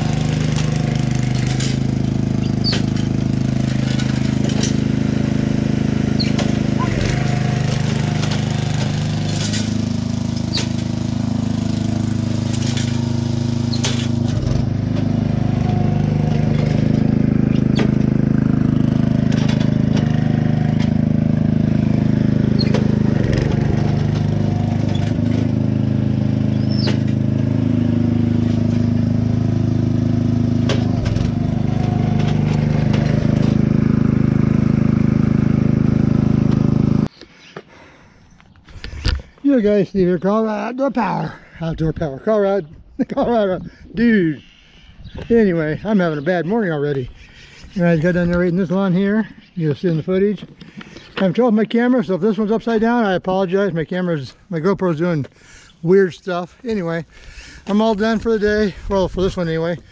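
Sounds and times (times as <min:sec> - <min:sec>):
small engine running: 0:00.0 - 0:37.1, 0:45.2 - 0:52.8, 0:55.3 - 0:59.9
sharp clicks and knocks: 0:19.2 - 0:21.0.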